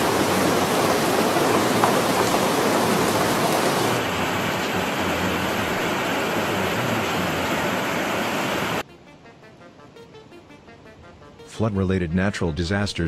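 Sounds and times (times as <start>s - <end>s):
floodwater rushing: 0.0s - 8.8s.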